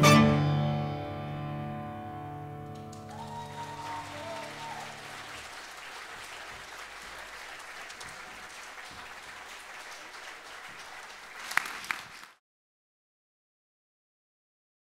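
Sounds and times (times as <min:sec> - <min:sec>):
audience applauding: 0:02.7 - 0:12.4.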